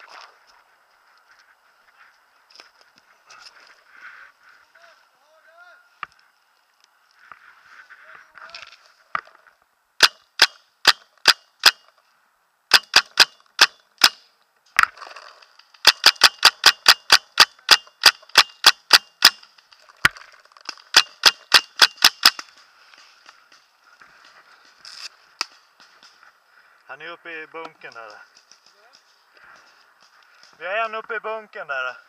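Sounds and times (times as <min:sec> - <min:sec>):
paintball marker firing: 0:20.9 - 0:22.5.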